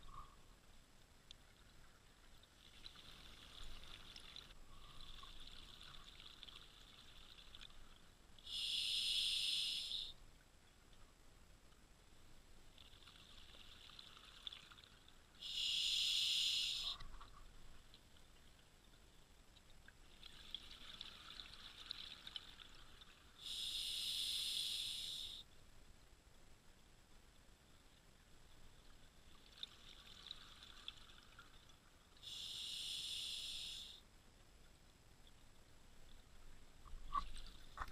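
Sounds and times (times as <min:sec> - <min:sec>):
regulator breathing hiss: 0:08.4 - 0:10.2, 0:15.4 - 0:17.0, 0:23.4 - 0:25.4, 0:32.2 - 0:34.0.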